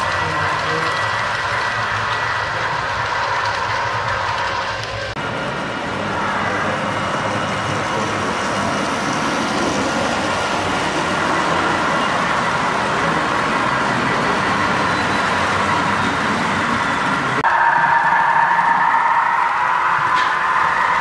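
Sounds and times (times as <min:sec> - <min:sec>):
model train wheels rumbling on rails: 0:00.0 - 0:17.4.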